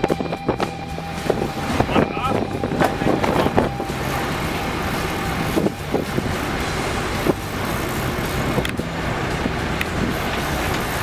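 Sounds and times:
boat engine drone: 0.0 - 11.0
rushing wind: 0.0 - 11.0
water noise: 0.0 - 11.0.

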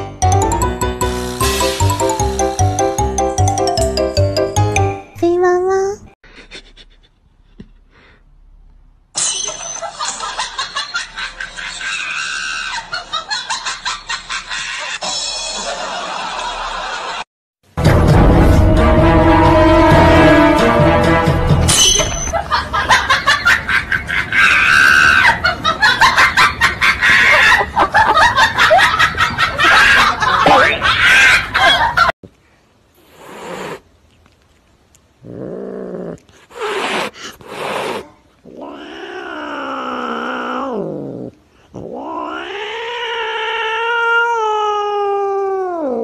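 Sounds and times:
cat meowing: 38.5 - 41.0, 41.8 - 46.0.

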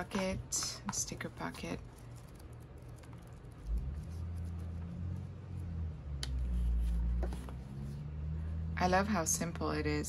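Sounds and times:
low hum: 0.0 - 10.0
paper pages rustling: 0.9 - 4.9.

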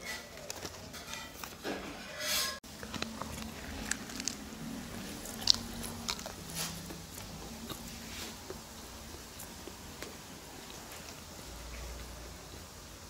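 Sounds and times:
person biting and chewing: 2.7 - 11.3.

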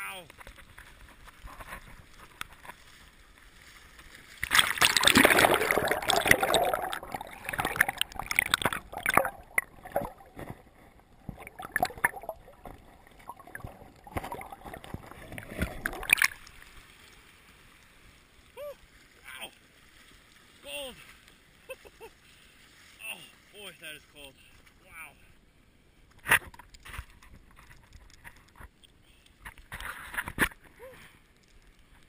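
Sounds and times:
splashing and bubbling water: 4.3 - 16.9
muffled underwater knocks and clicks: 5.9 - 16.3.

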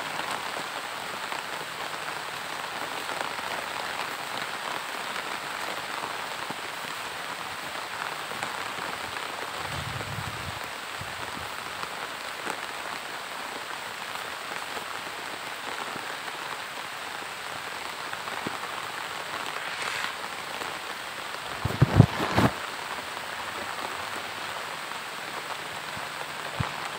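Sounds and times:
rain falling on grass: 0.0 - 26.9.

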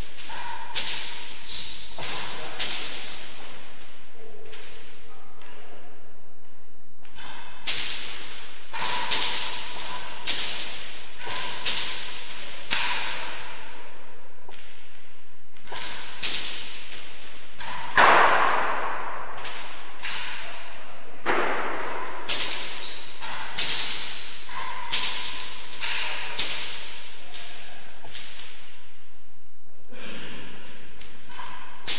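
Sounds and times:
ball cracking off rackets and walls: 7.1 - 13.7, 15.6 - 28.7.

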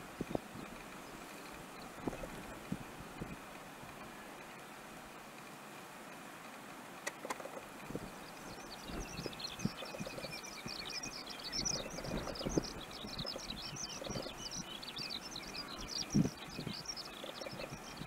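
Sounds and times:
small birds chirping rapidly: 7.2 - 18.0.

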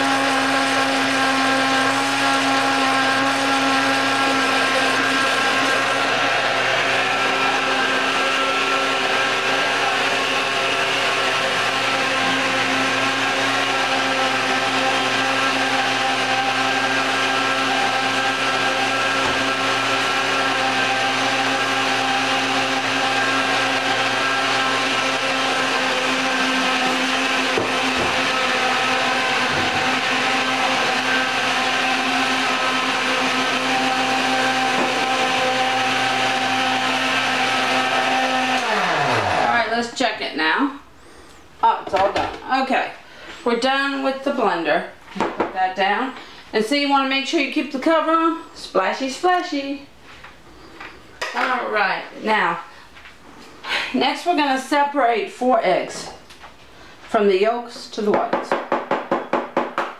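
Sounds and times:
blender motor running: 0.0 - 39.8.

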